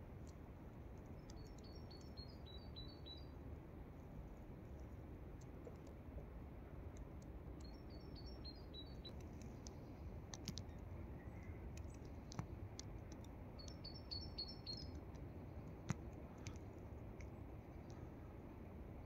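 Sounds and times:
faint clicks: 0:01.0 - 0:02.2, 0:09.1 - 0:14.0, 0:14.6 - 0:18.2
songbird singing high notes: 0:13.6 - 0:14.9.

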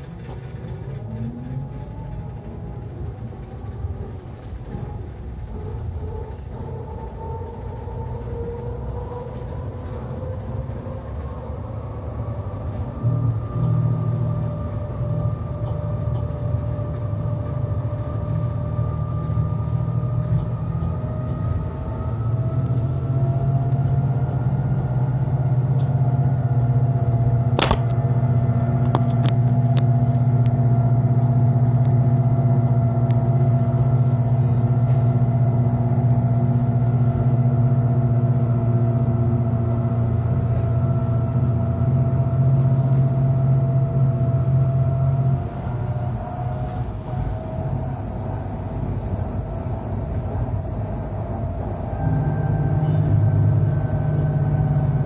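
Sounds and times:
railcar running gear rumble: 0:00.0 - 0:55.0
sharp click: 0:27.6 - 0:28.0.

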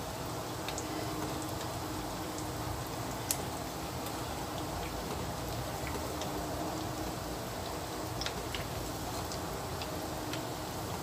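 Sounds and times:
cooking oil sizzling: 0:00.0 - 0:11.0.

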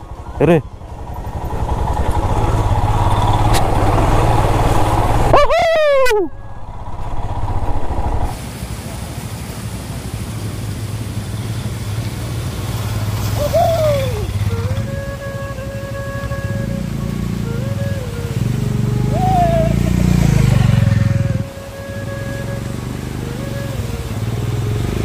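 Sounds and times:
motorcycle engine running: 0:00.0 - 0:05.5, 0:06.3 - 0:08.3, 0:16.9 - 0:21.5
rushing noise: 0:00.0 - 0:25.0
rider shouting in surprise: 0:05.3 - 0:06.4, 0:13.4 - 0:14.3, 0:19.1 - 0:20.8.

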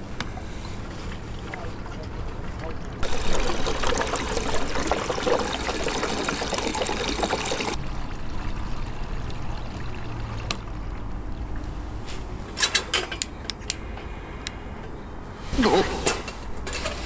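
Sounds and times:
liquid trickling through funnel: 0:00.8 - 0:11.7.

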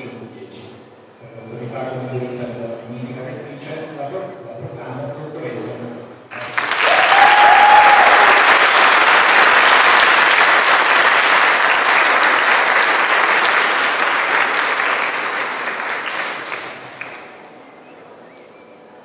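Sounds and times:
audience applauding: 0:06.3 - 0:17.4.

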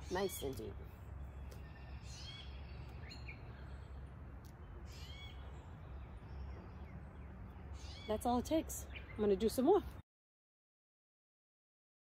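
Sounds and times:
high sweeping bird calls: 0:00.0 - 0:10.0
low outdoor rumble: 0:00.0 - 0:10.0
short rising bird chirp: 0:04.6 - 0:08.1.

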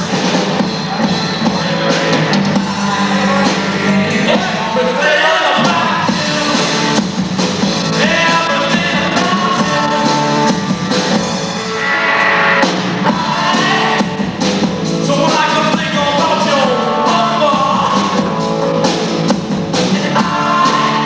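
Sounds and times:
person singing: 0:00.0 - 0:07.0, 0:07.8 - 0:10.7, 0:13.0 - 0:14.4, 0:15.0 - 0:18.4, 0:19.7 - 0:21.0
rock band playing live: 0:00.0 - 0:21.0.

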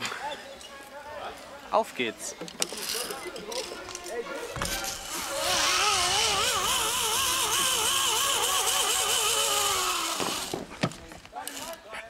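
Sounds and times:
zip-line pulley whirring on cable: 0:04.7 - 0:10.7.

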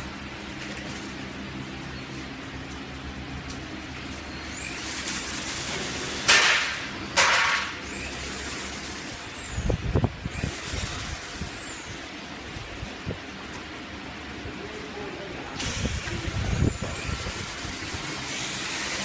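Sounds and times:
machine noise: 0:00.0 - 0:14.4, 0:15.6 - 0:19.0
air hissing from press: 0:15.6 - 0:19.0.

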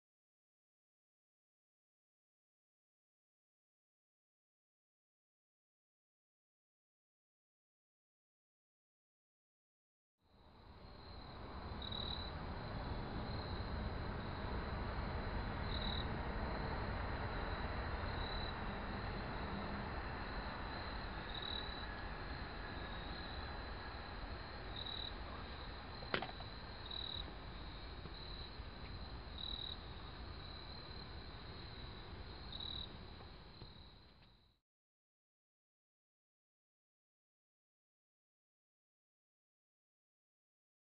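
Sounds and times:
low outdoor rumble: 0:10.4 - 0:34.2
crickets chirring: 0:10.4 - 0:34.6.

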